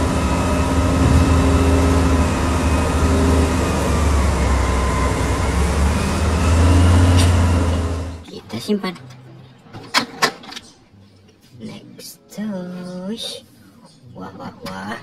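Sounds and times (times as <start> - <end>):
diesel engines droning: 0.0 - 8.3.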